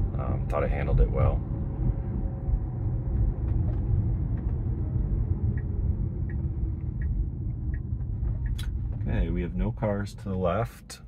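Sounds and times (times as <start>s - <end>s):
road and tyre rumble: 0.0s - 11.0s
turn signal ticking: 2.5s - 9.1s.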